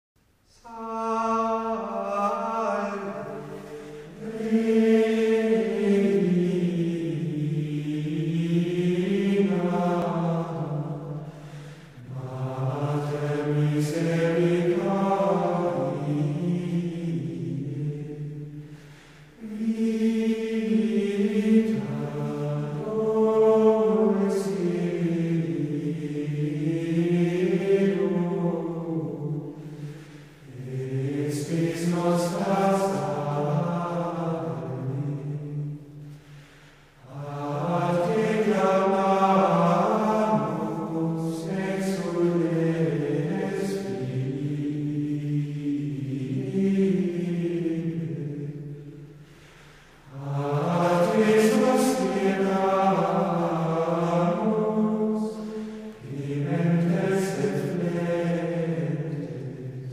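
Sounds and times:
slow sung chant: 0.2 - 59.9
group of voices chanting: 50.1 - 59.9.

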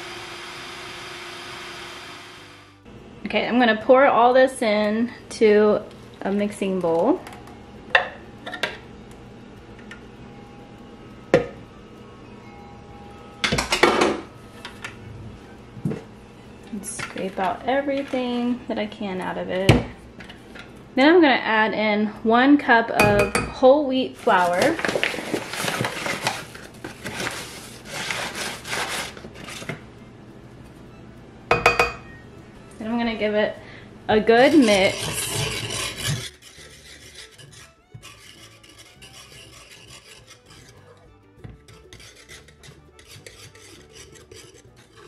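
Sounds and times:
utensil scraping a container: 24.2 - 29.7, 34.4 - 45.0.

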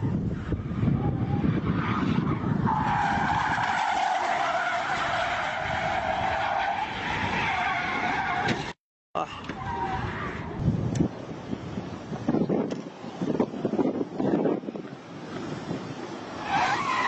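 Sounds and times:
car tyres squealing: 0.0 - 8.8, 9.4 - 10.6, 15.4 - 17.0.

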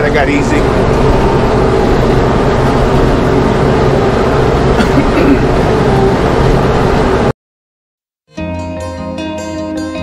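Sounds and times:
tractor diesel engine running: 0.0 - 7.3.

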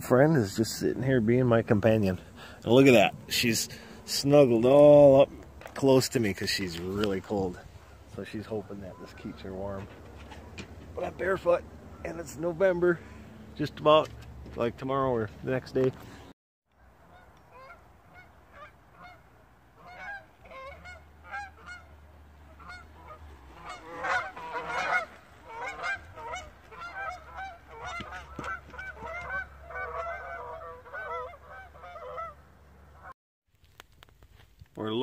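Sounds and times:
geese honking in flight: 5.8 - 13.5, 17.0 - 33.1.

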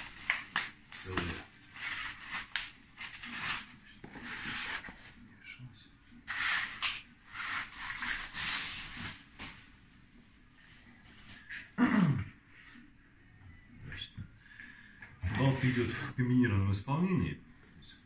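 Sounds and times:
bubble wrap crinkling: 0.0 - 4.9.

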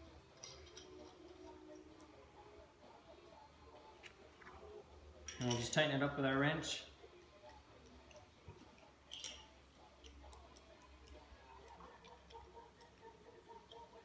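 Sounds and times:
small wrench clicking on metal: 9.1 - 13.0.

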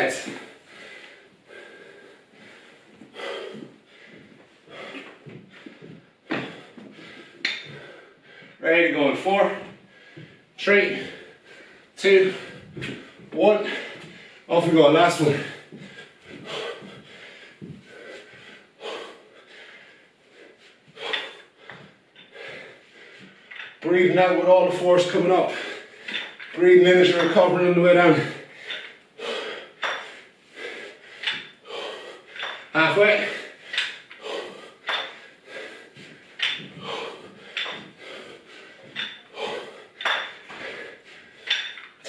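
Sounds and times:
man breathing hard: 0.1 - 8.6, 9.6 - 14.5, 15.2 - 23.8, 25.4 - 27.3, 28.0 - 42.0
metal dumbbells clinking: 7.4 - 7.8, 23.5 - 24.2, 26.0 - 27.5, 28.6 - 29.0, 29.8 - 30.2, 31.2 - 31.6, 32.3 - 34.2, 34.8 - 35.2, 36.3 - 38.0, 38.8 - 40.7, 41.4 - 42.0.

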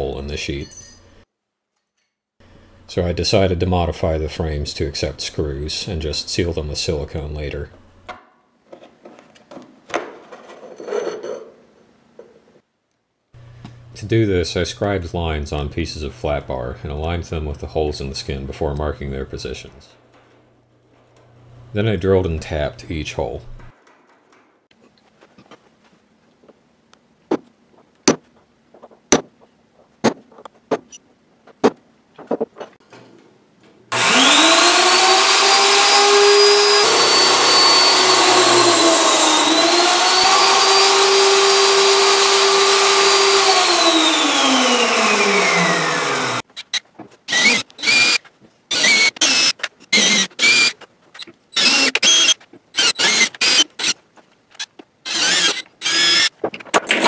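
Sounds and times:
metal parts clattering: 10.2 - 11.6
drill press motor whine: 33.9 - 46.4, 47.3 - 50.7, 51.6 - 53.9, 55.1 - 56.3.

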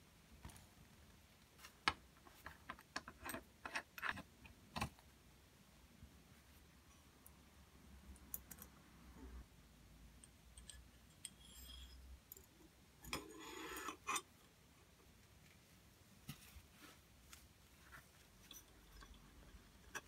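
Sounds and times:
metal rod scraping in barrel: 13.1 - 14.3.

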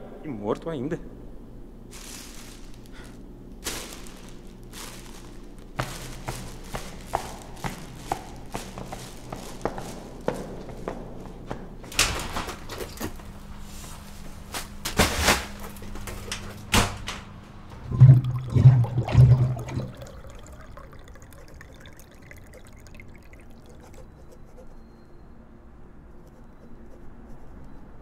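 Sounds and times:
water cooler bottle glugging: 17.7 - 24.1.

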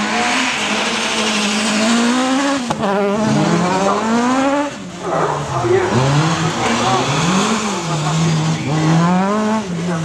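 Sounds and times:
rally car engine revving: 0.0 - 10.0.

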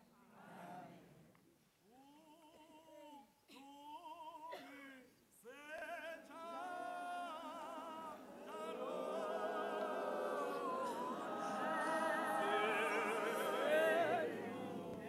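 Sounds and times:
women singing a hymn: 6.4 - 15.0.

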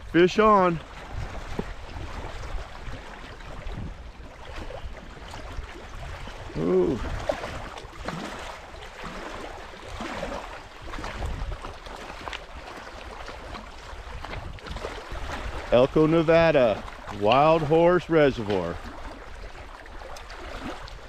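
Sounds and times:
wind on microphone: 0.0 - 11.8, 13.2 - 17.6
man saying ooh: 6.6 - 7.1
waves splashing on rocks: 14.4 - 18.8.

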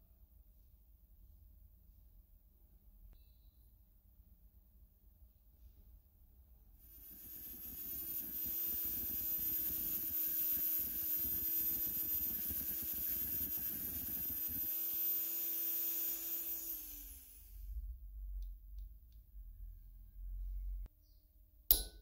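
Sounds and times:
cut-off wheel whining: 6.9 - 17.8.

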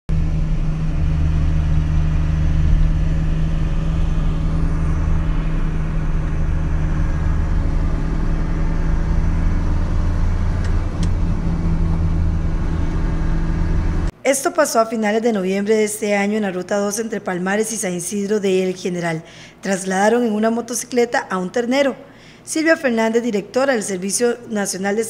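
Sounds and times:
car engine drone and road noise: 0.1 - 14.2.

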